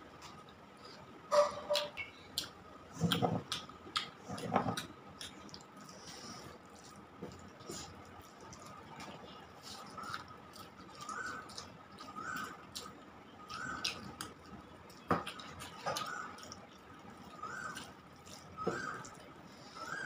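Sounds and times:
wet chewing: 1.7 - 20.0
fingers mixing food on steel plate: 6.7 - 20.0.

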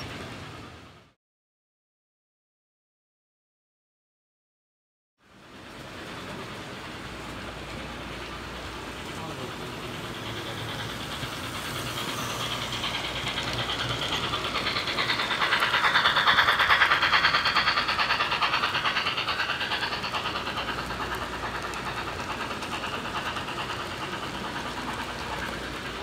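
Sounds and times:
model train wheels clicking: 5.7 - 26.0
train motor whine: 6.3 - 26.0.

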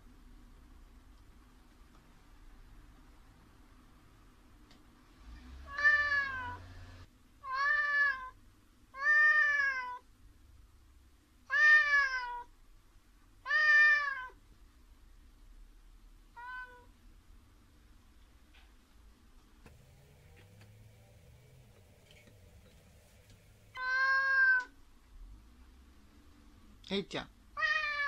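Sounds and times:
cat meowing: 5.7 - 6.6, 7.4 - 8.4, 9.0 - 10.0, 11.5 - 12.5, 13.4 - 14.4, 16.3 - 16.9, 23.7 - 24.8, 27.6 - 28.0.

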